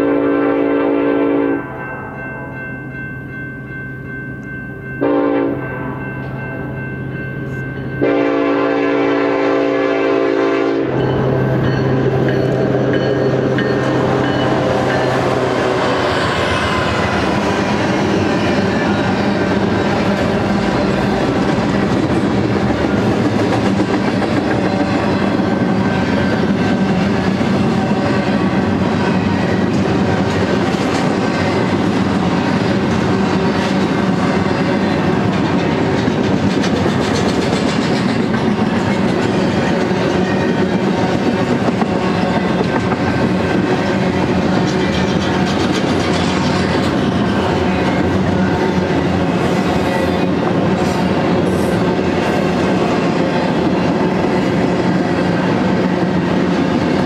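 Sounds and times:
locomotive horn: 0:00.0 - 0:02.2, 0:05.0 - 0:06.0, 0:08.0 - 0:16.1
train rumbling past: 0:00.0 - 0:57.0
wheels clacking on rail joints: 0:11.6 - 0:57.0.

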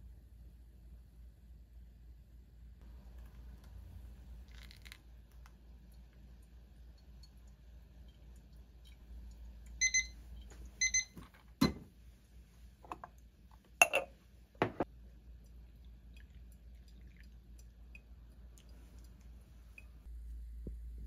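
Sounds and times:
dripper and mug clunking: 0:08.8 - 0:11.9, 0:12.8 - 0:13.2, 0:13.8 - 0:14.9
short electronic beeps: 0:09.8 - 0:10.2.

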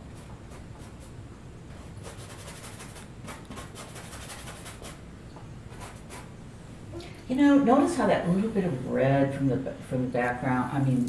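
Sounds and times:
paintbrush scratching canvas: 0:00.0 - 0:01.2, 0:02.0 - 0:05.0, 0:05.7 - 0:06.3.

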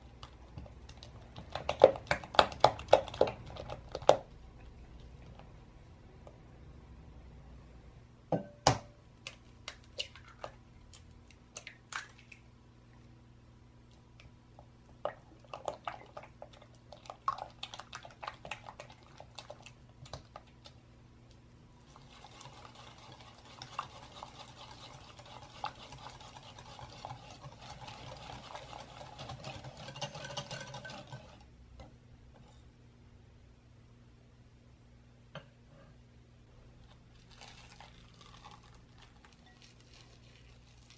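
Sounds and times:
spatula squelching and tapping: 0:00.1 - 0:04.3, 0:13.9 - 0:32.7
whisk swishing and clicking in bowl: 0:21.8 - 0:31.4.

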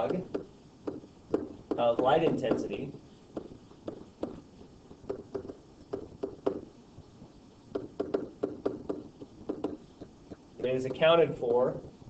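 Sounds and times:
stylus tapping on tablet screen: 0:00.0 - 0:11.1.

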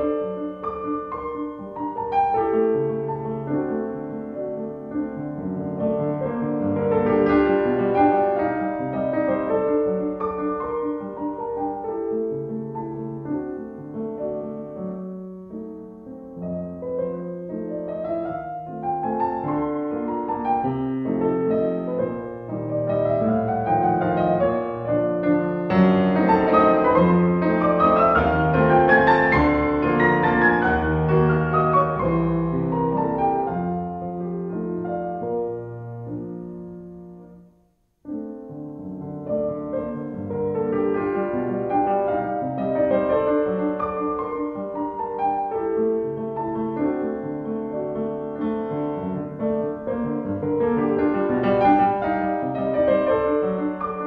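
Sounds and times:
piano music: 0:00.0 - 0:54.0.

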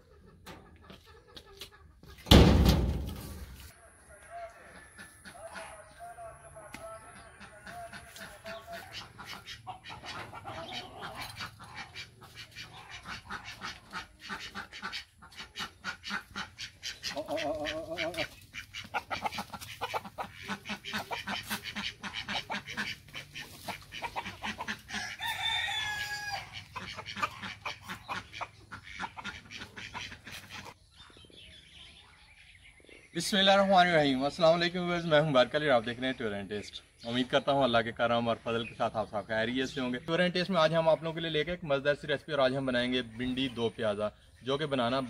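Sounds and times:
chickens clucking: 0:00.0 - 0:45.0
chicken long calls: 0:06.7 - 0:30.7.

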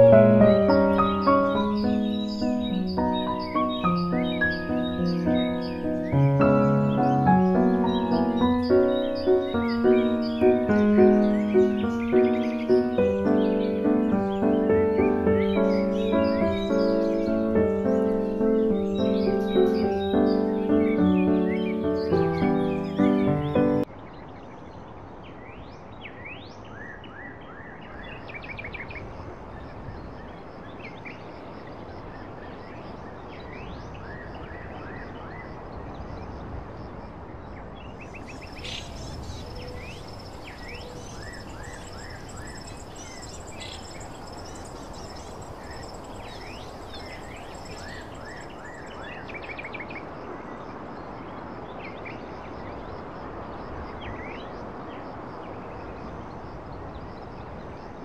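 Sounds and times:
birds chirping: 0:00.0 - 0:23.9, 0:38.1 - 0:49.3.

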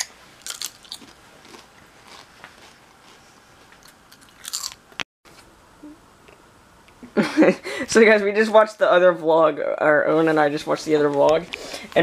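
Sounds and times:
potato chip crunching: 0:00.0 - 0:03.2, 0:03.8 - 0:04.8.

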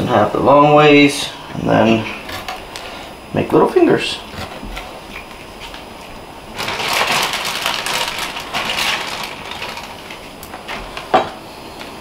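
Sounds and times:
plastic bag crinkling: 0:04.4 - 0:11.2.

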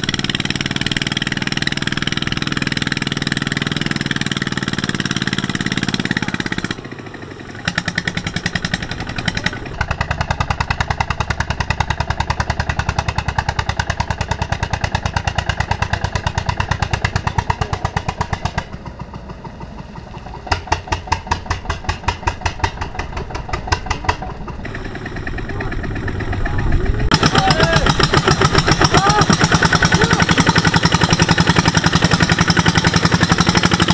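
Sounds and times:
diesel engine putt-putt: 0:00.0 - 0:33.9.

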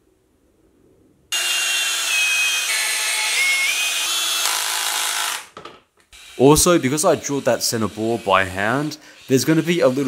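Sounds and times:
cordless drill driving screws: 0:01.4 - 0:05.6.

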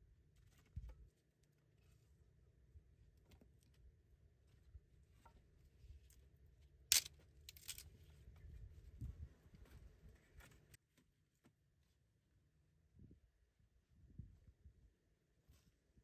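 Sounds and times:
dry sticks cracking: 0:06.9 - 0:07.9.

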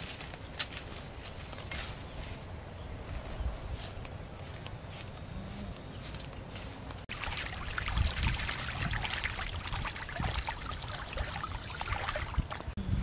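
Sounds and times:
ducks splashing in water: 0:07.1 - 0:12.8.

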